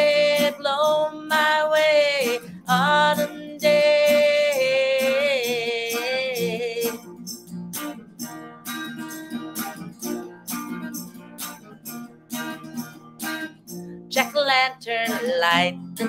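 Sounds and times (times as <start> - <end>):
woman singing with vibrato: 0.0 - 7.1, 14.1 - 16.0
electric guitar strumming: 0.0 - 16.0.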